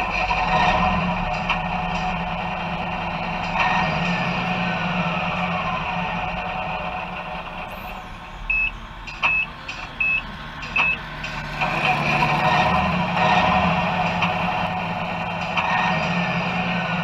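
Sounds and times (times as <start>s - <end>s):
model truck driving past: 0.0s - 17.0s
short reversing beeps: 8.5s - 10.2s.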